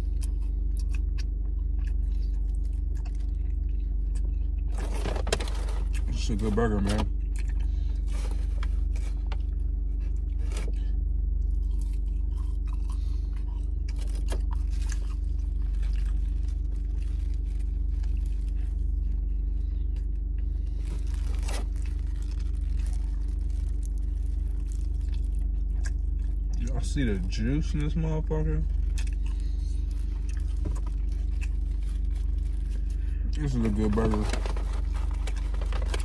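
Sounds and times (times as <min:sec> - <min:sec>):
person chewing: 0:00.0 - 0:05.0, 0:07.1 - 0:26.8, 0:28.7 - 0:33.4
car engine idling: 0:01.4 - 0:36.0
paper wrapper crinkling: 0:13.9 - 0:19.3, 0:20.5 - 0:26.2, 0:28.7 - 0:36.0.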